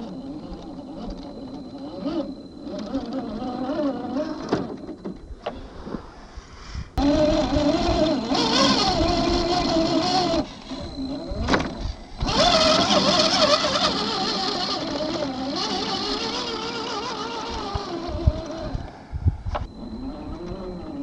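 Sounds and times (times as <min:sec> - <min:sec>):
electric motor and gears whining: 0:00.0 - 0:05.8, 0:07.0 - 0:21.0.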